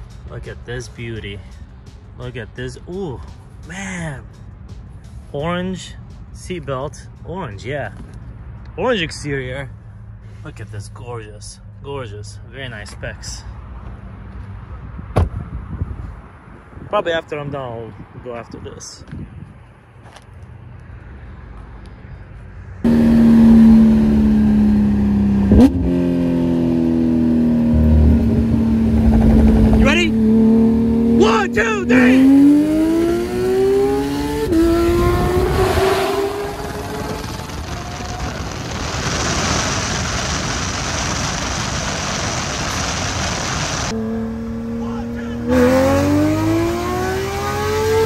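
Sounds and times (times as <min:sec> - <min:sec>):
sports car engines droning: 0:00.0 - 0:48.0
wind and road noise: 0:00.0 - 0:48.0
low engine rumble: 0:27.4 - 0:31.0.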